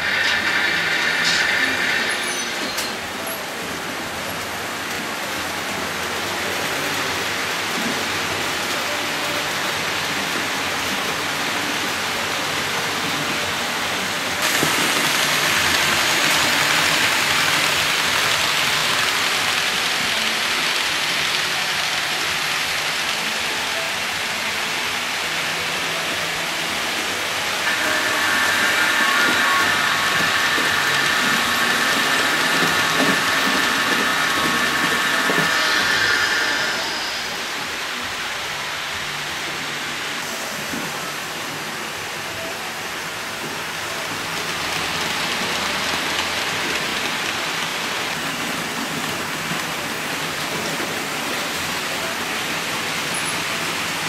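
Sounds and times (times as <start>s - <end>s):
model train rolling on metal track: 0.0s - 54.0s.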